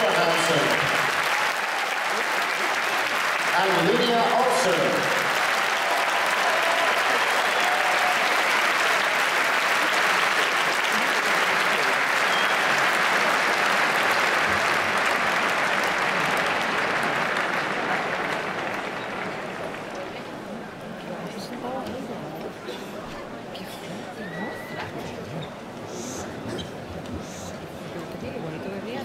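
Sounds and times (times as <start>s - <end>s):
audience applauding: 0.0s - 20.6s.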